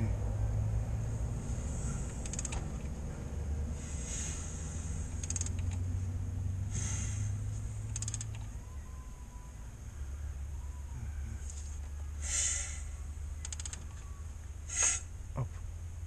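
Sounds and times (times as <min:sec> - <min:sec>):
crankshaft creaking and rasping: 0:01.6 - 0:03.0, 0:05.1 - 0:05.8, 0:06.9 - 0:08.5, 0:13.4 - 0:14.0
ratchet wrench clicks: 0:02.1 - 0:02.6, 0:05.2 - 0:05.8, 0:07.9 - 0:08.5, 0:13.4 - 0:13.9.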